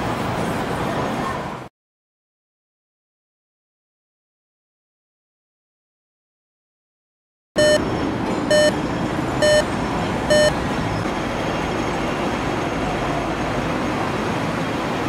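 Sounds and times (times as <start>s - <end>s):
road traffic noise: 0.0s - 1.7s, 7.6s - 15.0s
loud electronic beeps: 7.6s - 7.9s, 8.5s - 8.8s, 9.4s - 9.7s, 10.3s - 10.6s.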